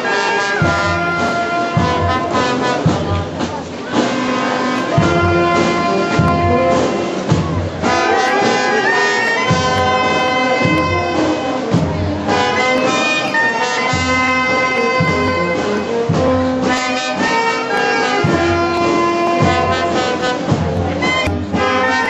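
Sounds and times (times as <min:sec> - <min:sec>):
brass band long notes: 0:00.0 - 0:22.0
low beat: 0:00.6 - 0:13.0.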